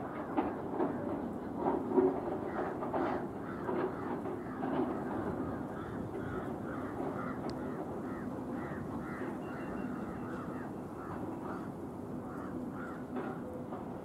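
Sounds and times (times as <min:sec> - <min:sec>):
crows cawing: 0:02.4 - 0:13.4.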